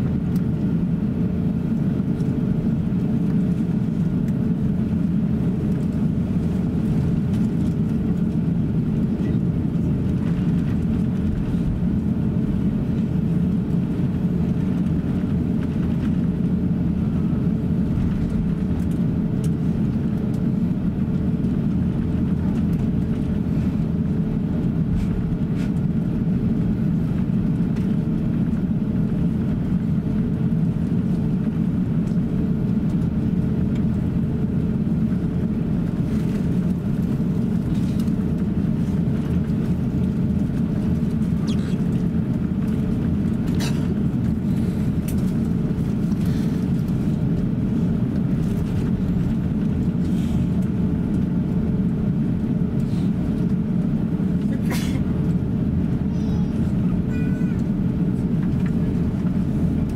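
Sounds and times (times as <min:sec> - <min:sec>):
low engine rumble: 0:00.0 - 0:59.9
wheels rolling on taxiway: 0:00.0 - 0:59.9.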